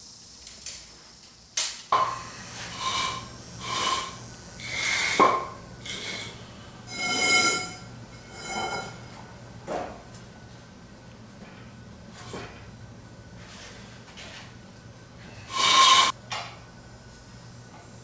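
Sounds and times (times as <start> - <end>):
metallic scraping on concrete: 2.4 - 9.1, 15.4 - 16.2.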